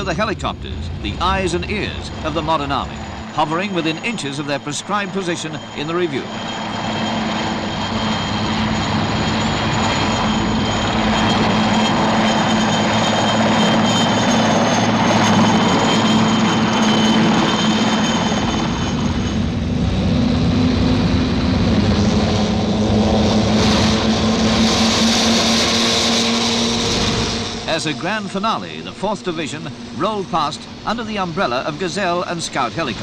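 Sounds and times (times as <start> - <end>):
armoured vehicles rumbling past: 0.0 - 33.0
helicopters whining past: 0.0 - 33.0.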